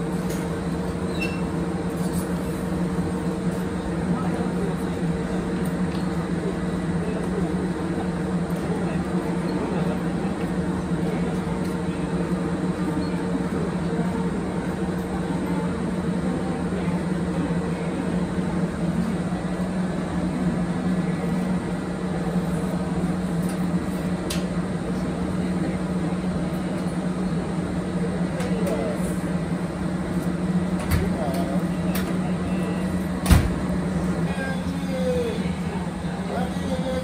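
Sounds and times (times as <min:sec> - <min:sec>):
electric train humming: 0:00.0 - 0:37.0.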